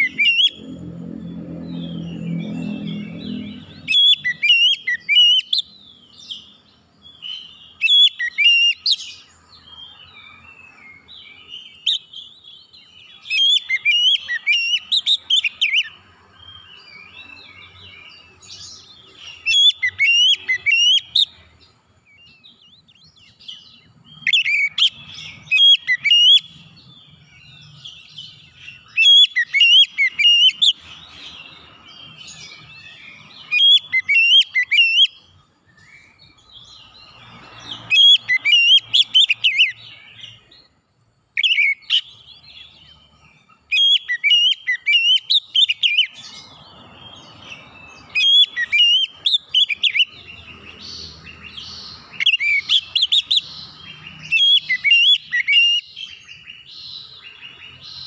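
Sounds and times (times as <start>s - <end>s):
bird singing whistled phrases: 0.0s - 0.6s, 2.2s - 6.5s, 7.2s - 9.2s, 11.3s - 16.0s, 19.2s - 21.4s, 22.2s - 26.6s, 27.5s - 30.8s, 32.3s - 35.2s, 41.4s - 42.2s, 43.7s - 46.3s, 48.1s - 50.5s, 52.2s - 57.8s.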